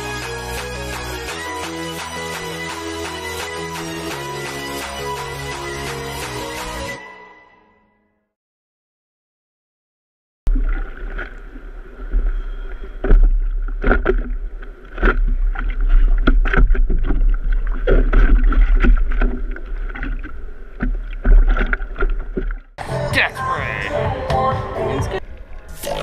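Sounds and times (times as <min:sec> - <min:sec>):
low rumble of water: 0:10.5 - 0:22.8, 0:25.2 - 0:26.0
hands paddling and splashing water: 0:13.0 - 0:22.7.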